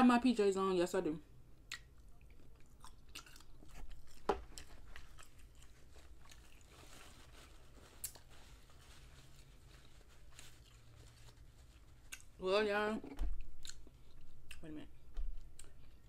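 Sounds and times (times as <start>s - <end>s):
chewing and smacking: 1.6s - 6.8s, 11.7s - 12.4s, 13.3s - 14.6s, 15.3s - 16.0s
paper towel crumpling: 4.7s - 12.1s.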